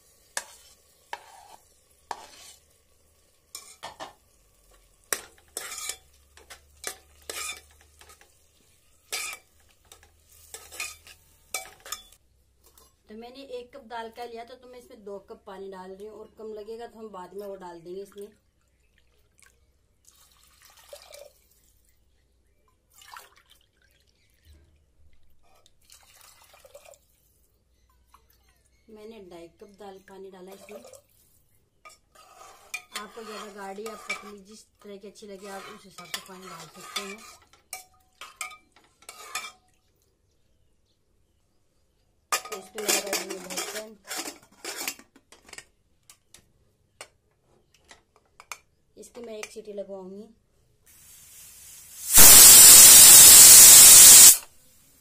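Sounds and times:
water pouring into a pot: 19.0 - 21.9, 22.9 - 24.3, 25.8 - 27.2, 51.0 - 54.4.

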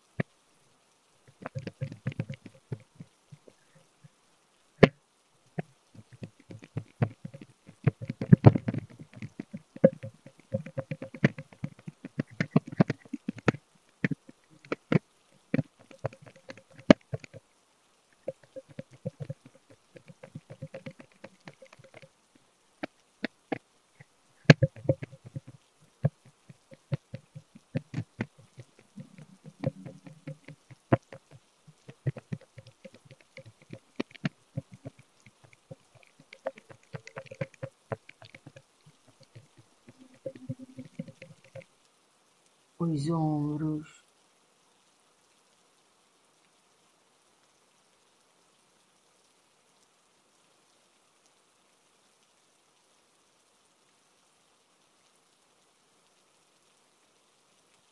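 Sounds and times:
cupping cups clicking and knocking: 1.3 - 3.8, 6.0 - 17.4, 18.2 - 22.1, 24.4 - 41.7.

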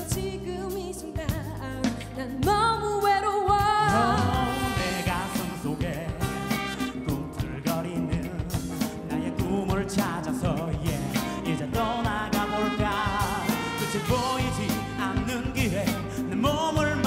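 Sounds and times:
live band playing: 0.0 - 17.0
man singing lead: 3.8 - 17.0.

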